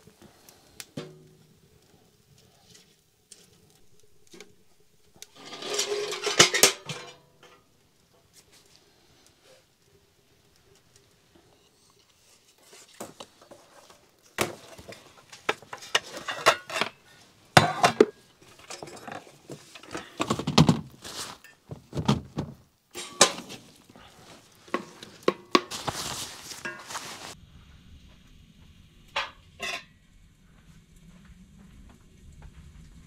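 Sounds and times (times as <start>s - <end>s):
objects knocking and clattering: 5.3s - 7.7s, 13.0s - 17.0s, 17.6s - 27.4s.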